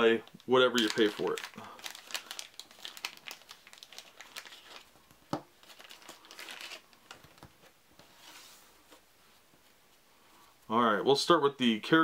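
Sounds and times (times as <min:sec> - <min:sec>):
plastic wrapping crinkling: 0:00.0 - 0:07.8.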